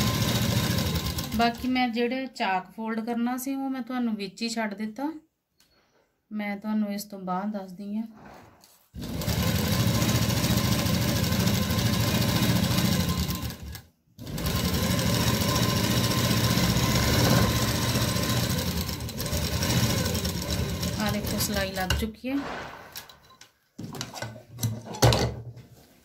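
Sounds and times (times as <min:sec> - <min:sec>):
sewing machine stitching: 0:00.0 - 0:01.8, 0:09.0 - 0:22.0.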